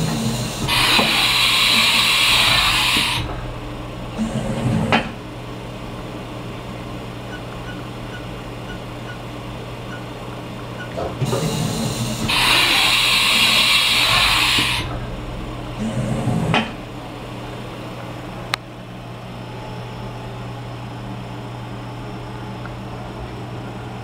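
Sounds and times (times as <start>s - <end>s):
machine loud high hiss: 0.0s - 6.7s, 11.2s - 18.5s
machine low hum: 0.0s - 24.0s.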